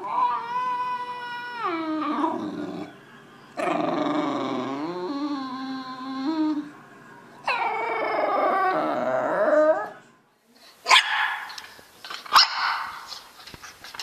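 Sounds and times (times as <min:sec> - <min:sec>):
dog howling: 0:00.0 - 0:03.0, 0:03.6 - 0:06.8, 0:07.4 - 0:10.0
puppy barking: 0:10.8 - 0:11.6, 0:12.3 - 0:13.1.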